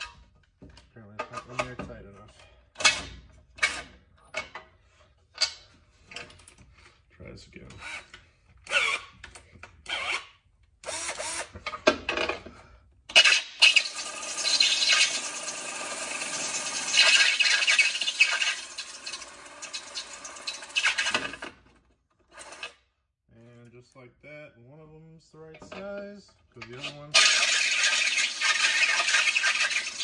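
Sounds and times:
cordless drill grinding metal: 7.7 - 11.7, 13.1 - 21.5, 22.2 - 22.8, 26.7 - 30.0.

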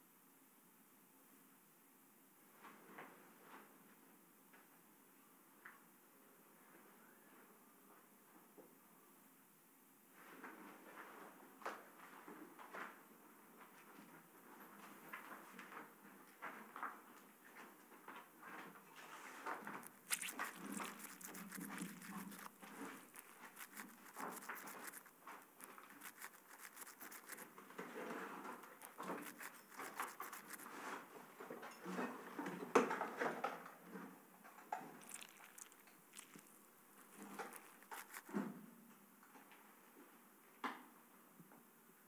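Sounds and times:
faint rustling: 19.0 - 31.1.

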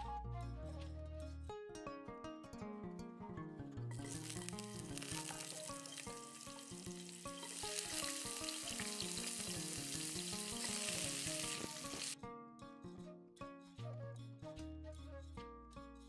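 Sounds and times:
background music: 0.0 - 16.0
potatoes sizzling in oil: 3.9 - 12.2.

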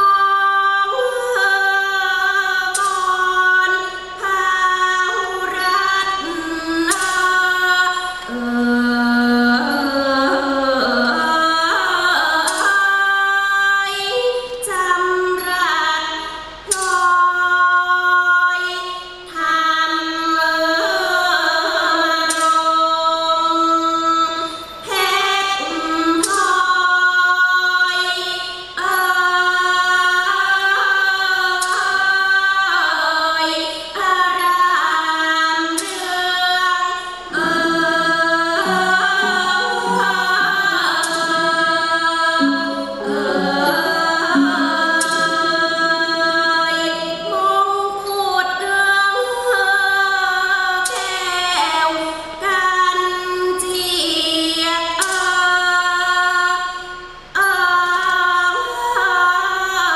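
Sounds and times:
sparse accompaniment: 37.2 - 48.2
woman singing held notes: 37.3 - 47.6.

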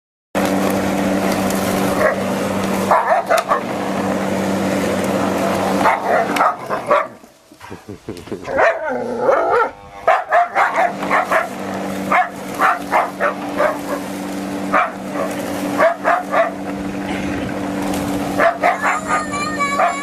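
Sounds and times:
steady low hum: 0.5 - 20.0
dog barking: 2.9 - 3.7, 5.8 - 7.2, 8.5 - 14.0, 14.7 - 16.6, 18.4 - 20.0
dog whining: 18.4 - 20.0.

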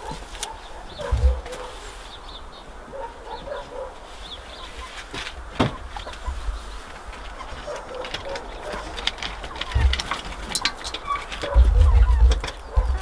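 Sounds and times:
hens clucking: 0.0 - 13.0.

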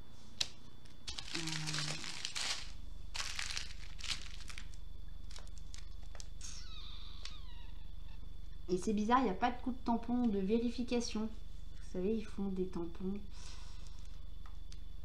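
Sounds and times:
plastic bags crinkling: 1.0 - 6.4.

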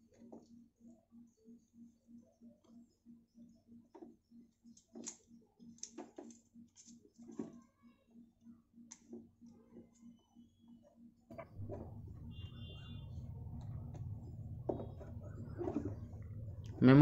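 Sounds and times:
faint low pulsing hum: 11.3 - 17.0.

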